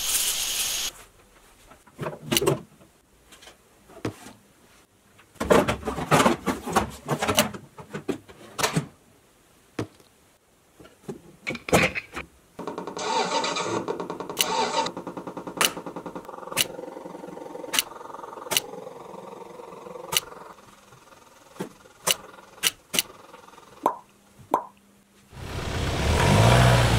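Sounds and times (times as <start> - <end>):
sharp clicks: 17.7 - 17.9, 20.1 - 20.3, 22.0 - 23.1.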